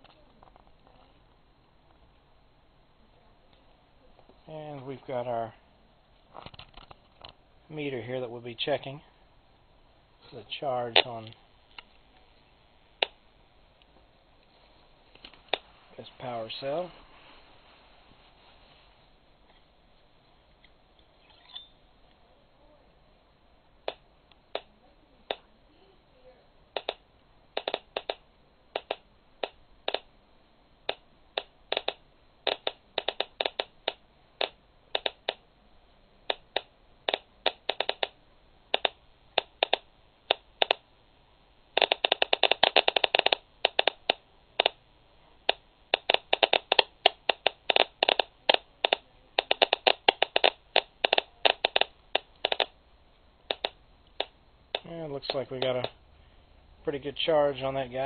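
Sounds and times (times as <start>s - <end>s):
geiger counter clicking: 23.8s - 25.5s, 26.7s - 30.1s, 30.8s - 35.4s, 36.2s - 40.9s, 41.7s - 44.8s, 45.4s - 52.8s, 53.4s - 56.0s.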